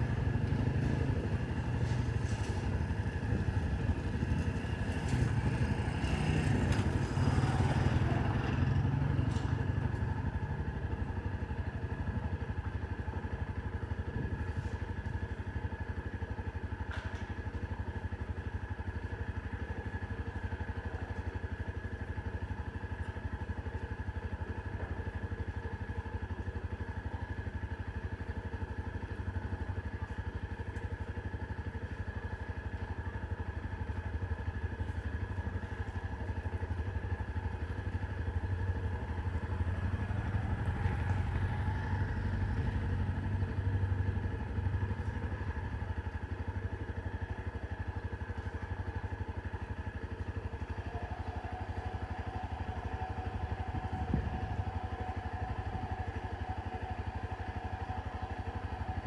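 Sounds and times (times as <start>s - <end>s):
motor vehicle passing: 0.0s - 10.5s
engine humming: 0.0s - 59.0s.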